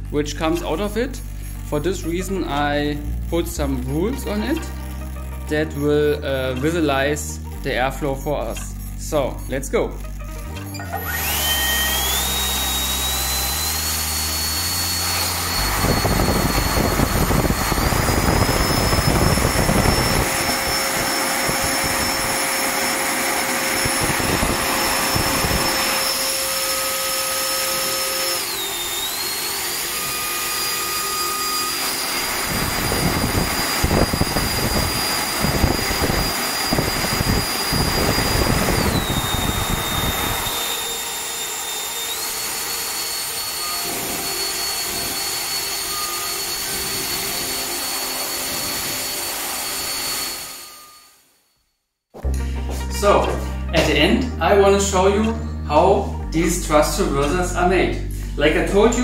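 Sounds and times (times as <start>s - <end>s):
electric ducted fan whine: 0.0s - 51.1s
air rushing through nozzle: 11.2s - 42.0s.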